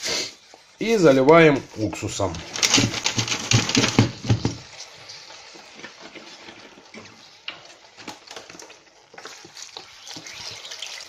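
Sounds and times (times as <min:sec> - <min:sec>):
liquid trickling hiss: 0:08.7 - 0:11.0.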